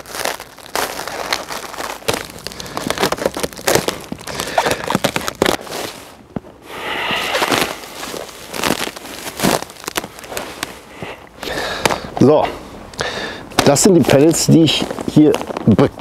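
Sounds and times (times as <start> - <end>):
plastic sack crinkling: 0.0 - 12.1.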